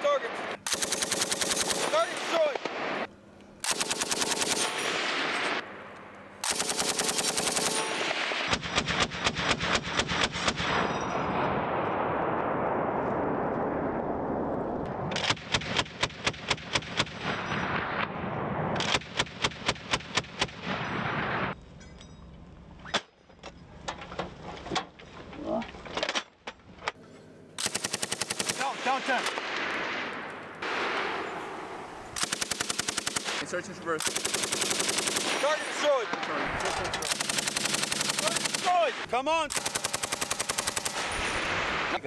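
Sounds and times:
machine gun bursts: 0.6 - 2.2, 3.6 - 5.6, 6.4 - 10.6, 27.6 - 29.4, 32.2 - 33.4, 34.0 - 35.8, 36.4 - 38.9, 39.5 - 42.0.

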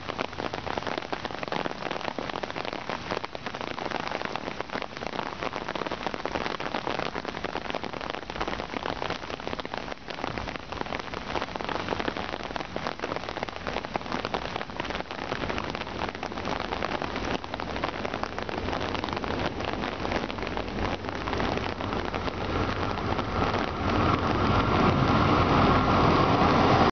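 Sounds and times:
rain on ground and foliage: 0.0 - 26.9
low rumble: 20.5 - 26.9.

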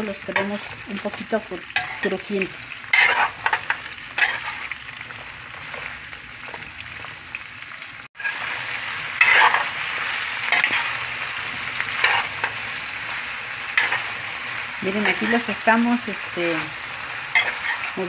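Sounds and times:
vegetables sizzling: 0.0 - 18.0
spoon stirring and scraping: 2.9 - 4.6, 12.0 - 12.6, 17.3 - 17.9.

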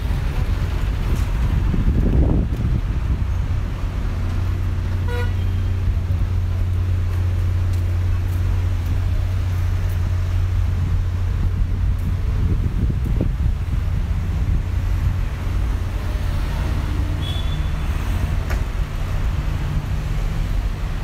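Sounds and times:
car engines rumbling: 0.0 - 21.0
car horn toot: 5.0 - 5.7, 17.2 - 17.8.

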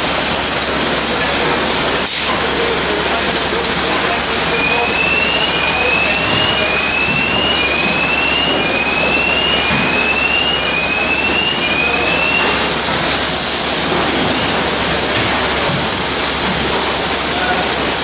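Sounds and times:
conveyor machine noise: 0.0 - 18.0
short rising whine: 4.5 - 13.7.

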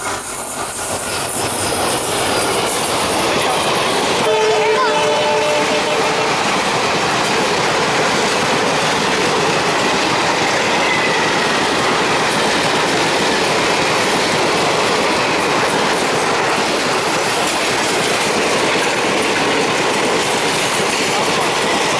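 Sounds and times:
train wheels rushing on rails: 0.0 - 21.9
wheels clattering over rail joints: 6.3 - 21.9.

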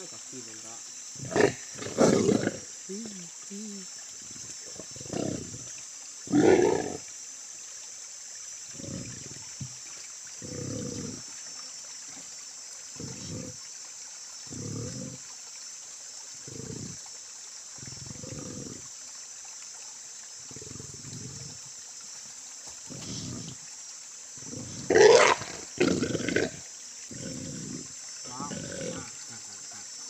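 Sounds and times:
pig grunting: 1.2 - 2.6, 4.8 - 5.6, 6.3 - 7.0, 10.4 - 11.2, 13.0 - 13.6, 14.5 - 15.2, 16.4 - 17.0, 17.8 - 18.8, 22.9 - 23.6, 24.4 - 29.3
pig squealing loudly: 24.9 - 26.5.

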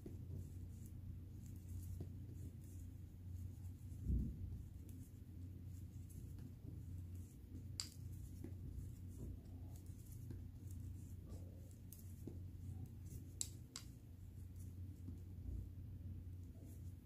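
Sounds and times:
low steady hum: 0.0 - 17.0
knitting needles clicking: 7.7 - 8.3, 13.0 - 14.0.

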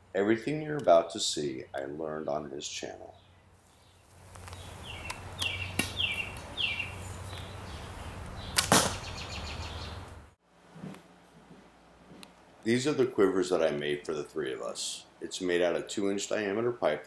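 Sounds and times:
bow string snap: 8.5 - 9.0.

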